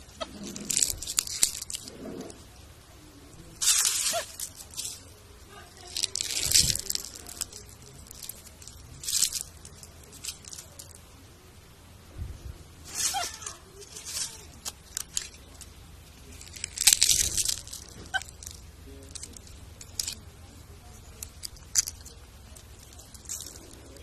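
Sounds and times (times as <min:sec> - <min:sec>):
leaves crunching and crackling: 0:00.0 - 0:11.2, 0:12.8 - 0:24.0.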